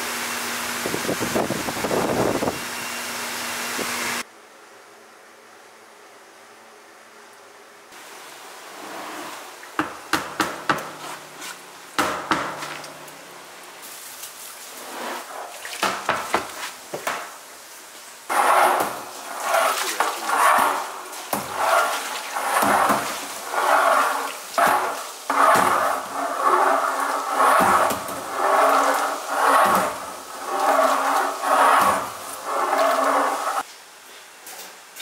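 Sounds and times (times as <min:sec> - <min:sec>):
rod stirring sloshing mash: 0:18.3 - 0:33.6.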